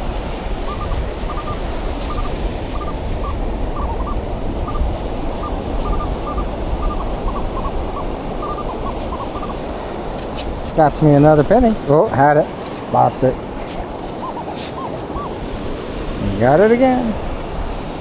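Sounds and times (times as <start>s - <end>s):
surf rushing: 0.0s - 18.0s
metal detector beeps: 0.6s - 9.6s, 14.2s - 15.3s.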